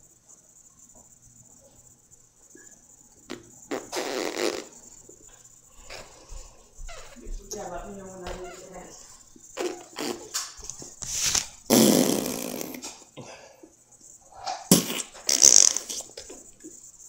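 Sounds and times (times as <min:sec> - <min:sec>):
fart-like mouth sputters: 0:03.3 - 0:04.8, 0:09.6 - 0:10.5, 0:11.3 - 0:13.0, 0:14.5 - 0:16.3.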